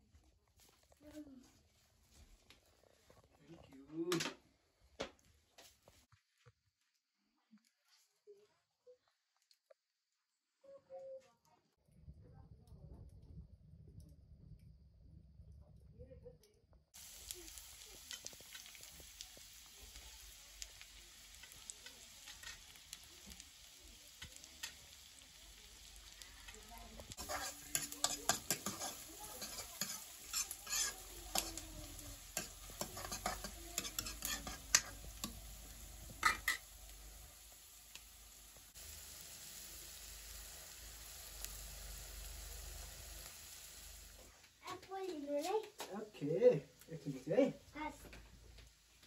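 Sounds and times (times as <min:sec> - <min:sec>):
food sizzling in a pan: 0:17.0 - 0:49.0
utensil scraping a pan: 0:27.1 - 0:35.4, 0:36.1 - 0:36.7.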